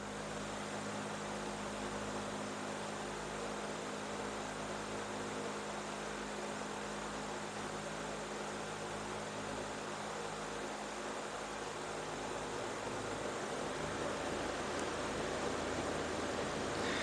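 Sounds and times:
constant hiss: 0.0s - 17.0s
electrical mains hum: 0.0s - 17.0s.

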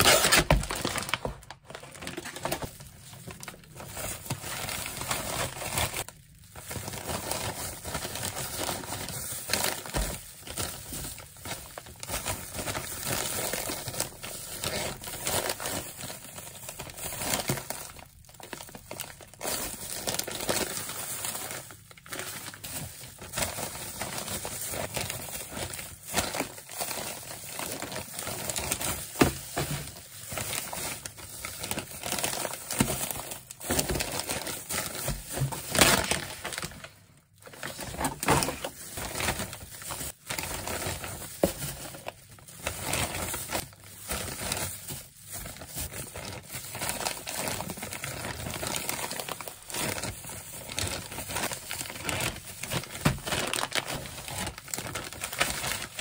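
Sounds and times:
plastic bags crinkling: 0.0s - 56.0s.

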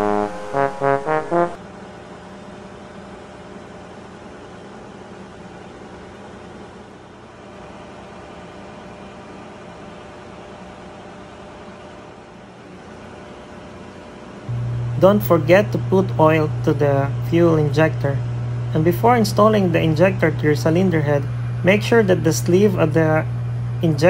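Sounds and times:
brass music: 0.0s - 1.6s
machinery hum: 0.0s - 3.4s, 6.7s - 24.0s.

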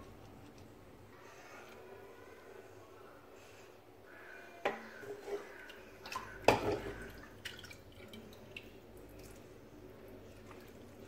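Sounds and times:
dripping liquid: 4.7s - 11.0s
broth pouring and splashing: 4.8s - 11.0s.

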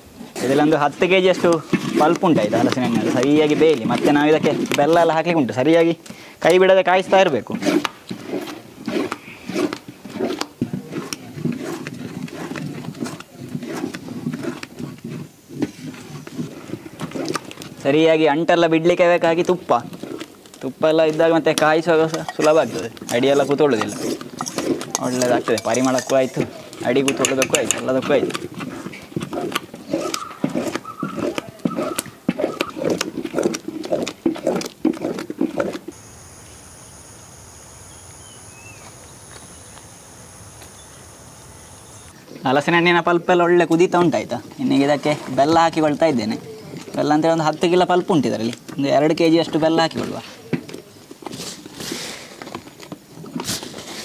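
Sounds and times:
thick pulp squelching: 0.4s - 5.2s
high insect drone: 35.9s - 42.2s
wood fire crackling: 35.9s - 42.2s.

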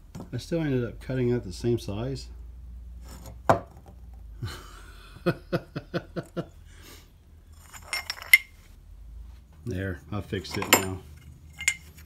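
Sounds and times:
man chuckling: 4.4s - 6.6s.

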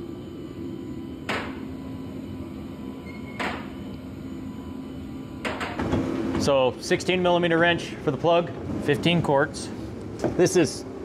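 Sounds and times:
low hum: 0.0s - 7.6s.

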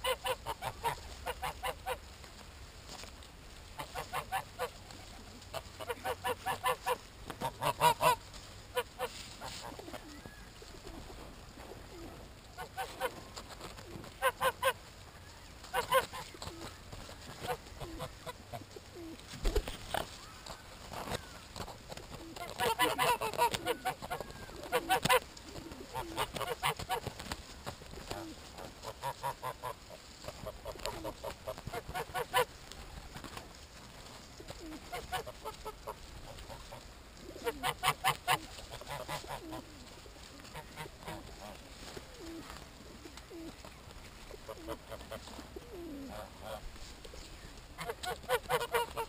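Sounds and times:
geese honking: 5.5s - 8.2s, 22.6s - 24.1s.

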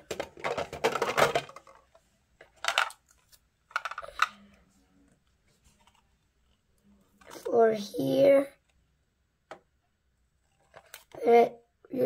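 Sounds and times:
plastic toy parts clattering: 0.0s - 4.4s.

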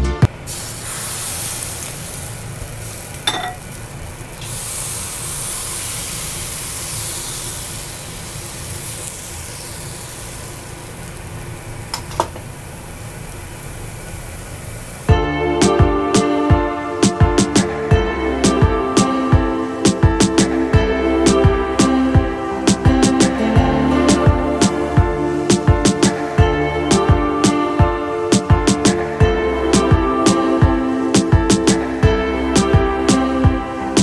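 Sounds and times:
batter sizzling in a pan: 0.5s - 15.1s.

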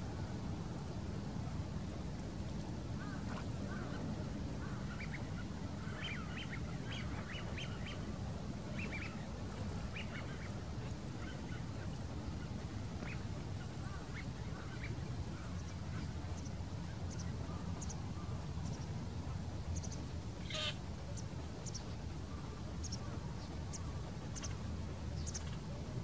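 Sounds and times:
steady low rumble: 0.0s - 26.0s
waterfowl calling: 19.8s - 20.9s.

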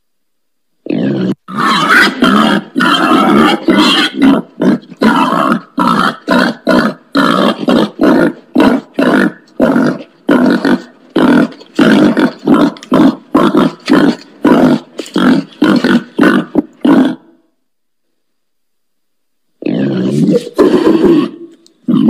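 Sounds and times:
pig grunting: 0.8s - 17.4s, 19.6s - 22.0s.

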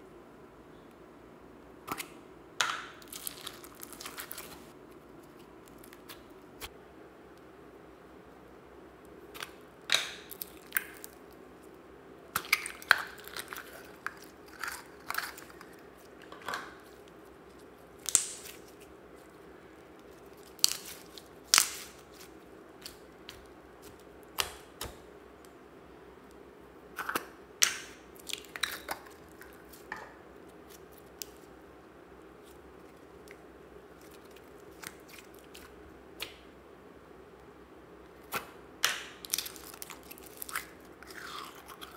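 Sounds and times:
slime popping and crackling: 2.7s - 4.7s, 9.3s - 11.3s, 18.0s - 18.9s, 20.0s - 25.0s, 38.3s - 41.9s.

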